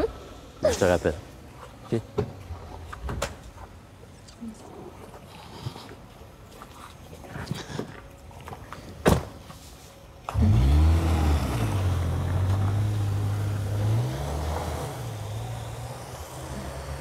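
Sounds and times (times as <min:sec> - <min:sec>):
car engine revving and droning: 0:10.3 - 0:17.0.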